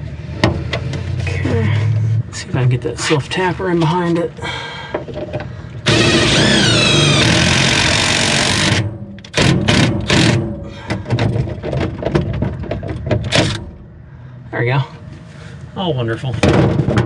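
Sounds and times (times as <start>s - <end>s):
impact driver driving screw: 5.9s - 10.4s.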